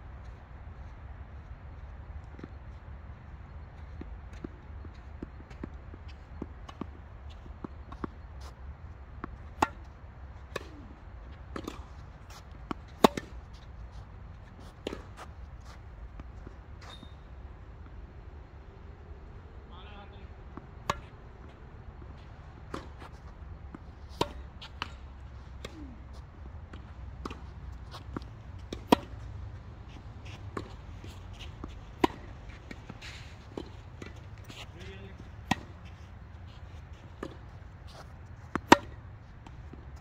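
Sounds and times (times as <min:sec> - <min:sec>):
tennis ball hits: 0:09.2 - 0:09.9, 0:10.5 - 0:13.4, 0:22.6 - 0:26.0, 0:26.7 - 0:36.2, 0:37.1 - 0:37.6, 0:38.4 - 0:39.9.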